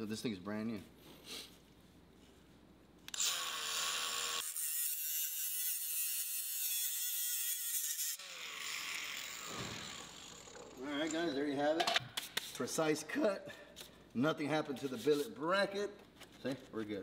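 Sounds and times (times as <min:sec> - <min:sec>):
rotary tool grinding steel: 0:03.1 - 0:11.4
rotary tool whine: 0:07.7 - 0:11.3.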